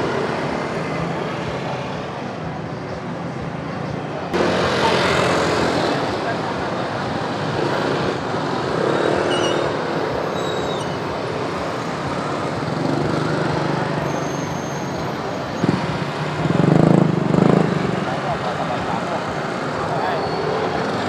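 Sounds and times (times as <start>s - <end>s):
loud engine close by: 0.0s - 21.0s
traffic hum: 0.0s - 21.0s
motor scooter engines running: 3.2s - 14.1s, 15.0s - 21.0s.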